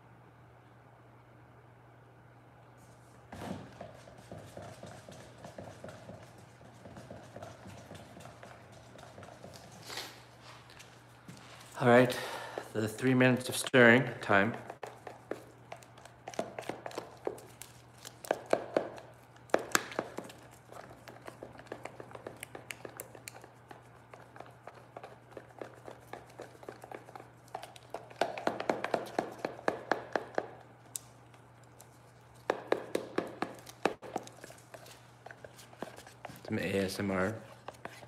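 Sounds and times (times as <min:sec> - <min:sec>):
stirrer scraping plastic container: 0:03.8 - 0:10.0, 0:19.6 - 0:30.5, 0:31.7 - 0:38.0.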